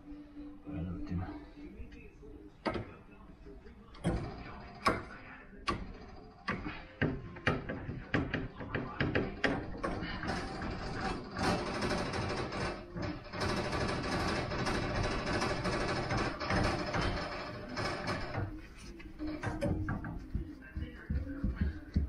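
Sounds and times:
tools knocking on plumbing: 0:05.7 - 0:18.6, 0:19.2 - 0:22.0.

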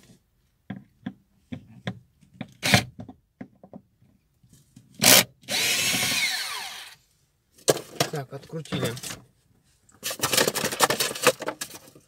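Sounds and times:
tool clicking and scraping plastic: 0:09.9 - 0:12.0.

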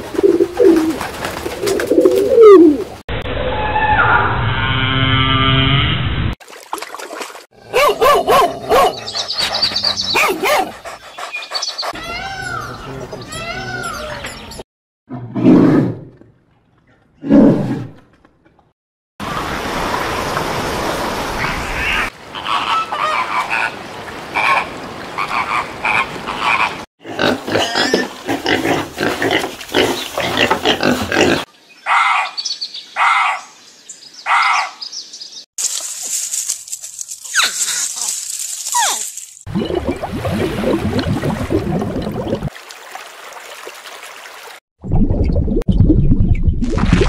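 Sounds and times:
animal calls and chatter: 0:08.9 - 0:14.5.

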